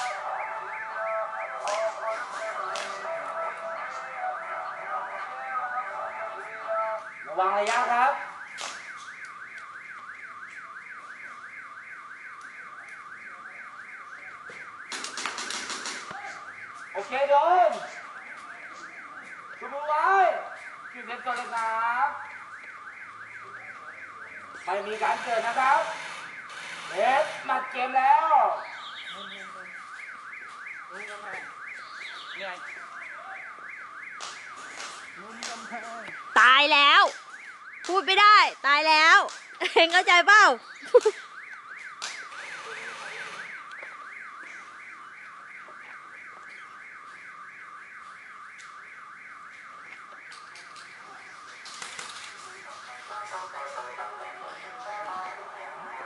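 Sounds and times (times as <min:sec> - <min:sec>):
faint voices: 0:00.0 - 0:07.1
electronic alarm siren wailing: 0:00.0 - 0:56.0.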